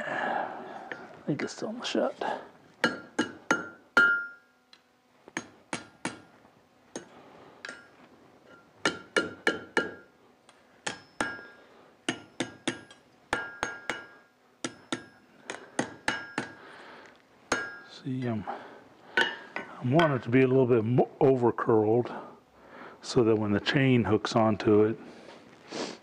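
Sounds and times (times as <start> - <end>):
hammer striking steel on anvil: 2.8 - 4.6, 5.3 - 6.3, 6.9 - 10.1, 10.8 - 16.6, 17.5 - 18.0, 19.2 - 20.2.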